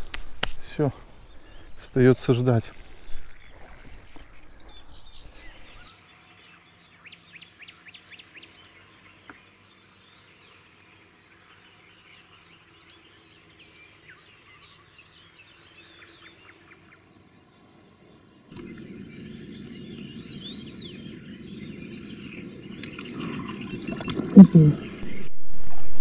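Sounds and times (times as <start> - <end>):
small birds chirping: 0.0 - 25.4
low noise: 16.5 - 26.0
bird trills: 18.5 - 25.3.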